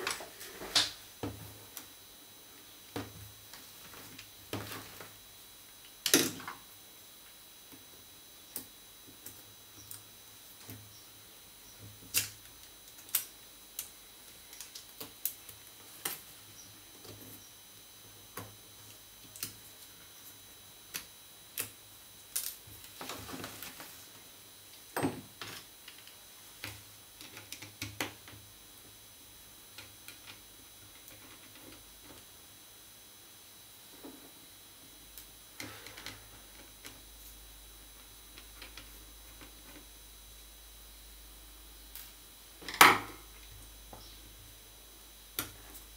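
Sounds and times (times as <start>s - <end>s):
small clicks and taps: 25.5s - 28.4s.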